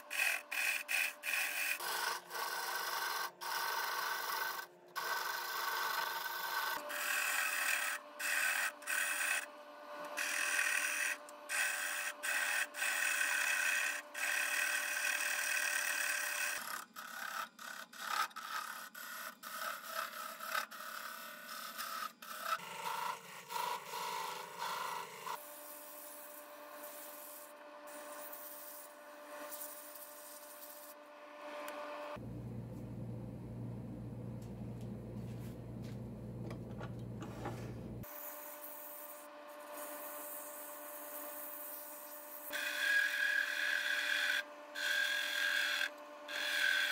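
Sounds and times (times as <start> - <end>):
gouge scraping spinning wood: 0.0 - 31.0, 37.2 - 46.9
low steady hum: 32.2 - 38.0
thin steady lathe whine: 35.3 - 46.9.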